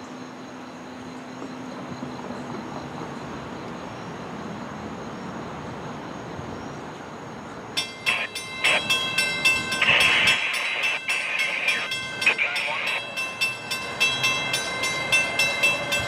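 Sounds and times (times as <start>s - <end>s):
train rumbling: 0.0s - 16.0s
crossing bell ringing rapidly: 7.8s - 16.0s.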